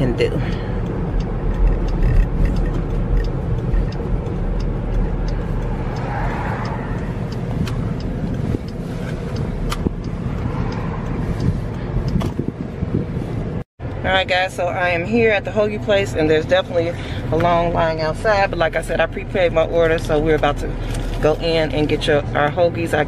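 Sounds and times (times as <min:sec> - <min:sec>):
engine and road rumble: 0:00.0 - 0:23.0
sharp clicks: 0:00.8 - 0:12.6.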